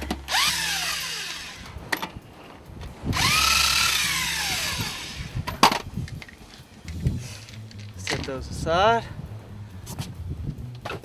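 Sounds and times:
cordless drill whining: 0.3s - 1.8s, 3.2s - 5.4s.

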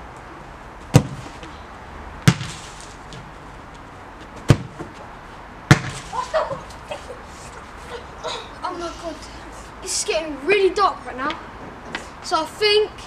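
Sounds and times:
football being kicked: 0.9s - 1.4s, 2.2s - 3.2s, 4.4s - 5.0s, 5.7s - 6.1s.

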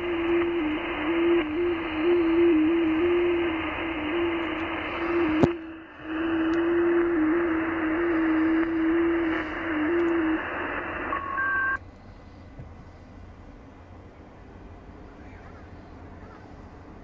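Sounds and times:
digital-mode radio tone: 0.0s - 11.8s
radio receiver hiss: 0.0s - 13.1s.

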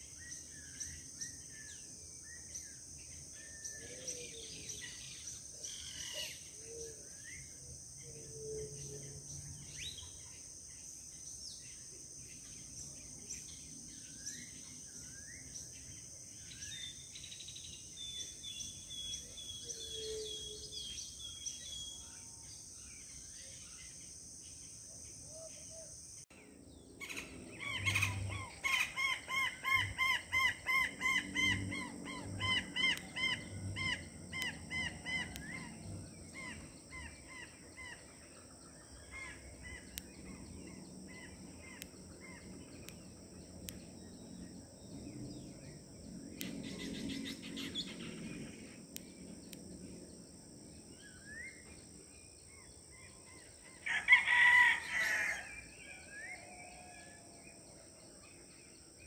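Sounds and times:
high insect drone: 0.0s - 59.0s
birds calling: 27.0s - 44.0s.

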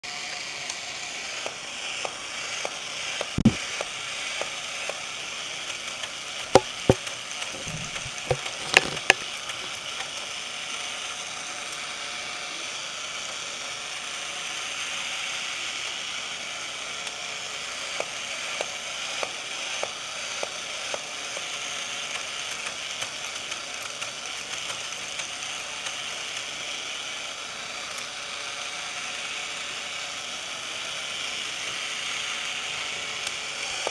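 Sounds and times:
toy motor whirring: 0.1s - 33.9s
sharp knocks: 6.5s - 9.2s
light ratcheting clicks: 22.1s - 26.5s.

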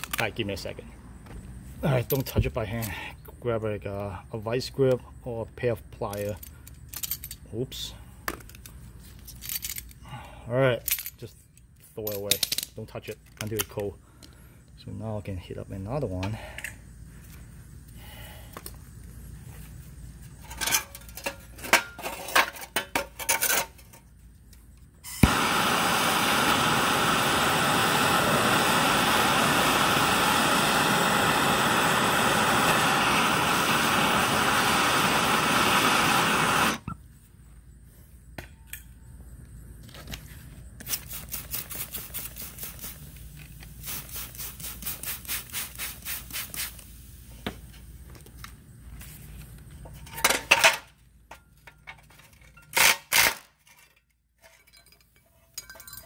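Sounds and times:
gas torch hissing: 25.0s - 37.0s, 40.8s - 47.7s
gas torch ignition click: 25.1s - 37.0s
spray bottle squirting: 40.8s - 47.0s.

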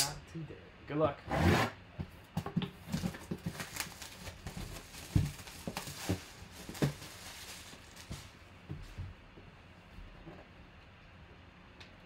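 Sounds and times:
shrink wrap crinkling: 2.9s - 8.5s
cardboard box knocks: 4.6s - 7.1s.

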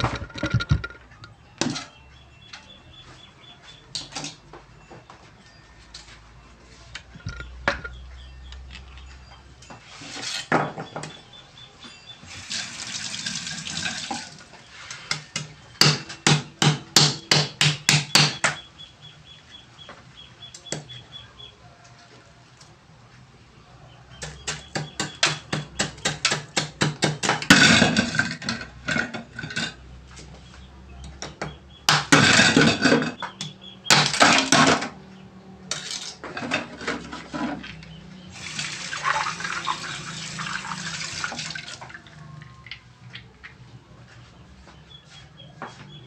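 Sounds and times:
running water: 12.3s - 14.5s, 38.4s - 42.6s.

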